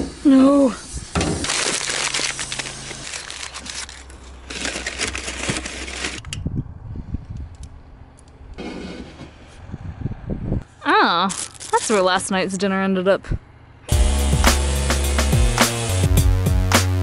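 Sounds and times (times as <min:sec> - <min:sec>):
rustling handling noise: 0:01.4 - 0:06.3, 0:11.3 - 0:12.3.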